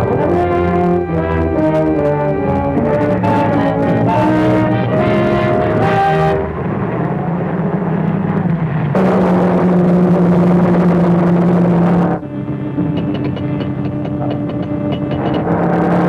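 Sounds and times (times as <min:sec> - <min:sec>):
brass orchestral phrase: 0:00.0 - 0:06.9, 0:09.0 - 0:13.6.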